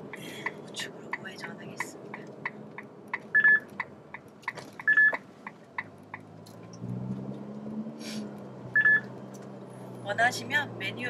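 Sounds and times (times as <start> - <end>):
turn signal ticking: 0.0 - 11.0
short electronic beeps: 3.3 - 3.7, 4.8 - 5.2, 8.8 - 9.1
car engine revving: 4.4 - 11.0.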